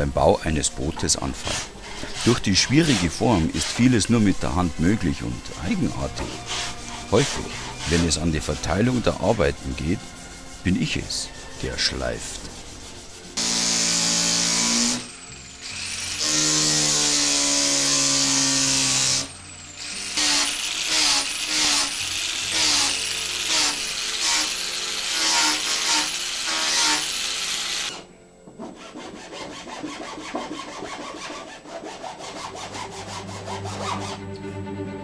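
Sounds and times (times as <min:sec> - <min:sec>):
background music: 0:00.0 - 0:35.0
hand strokes on wood: 0:01.4 - 0:13.4.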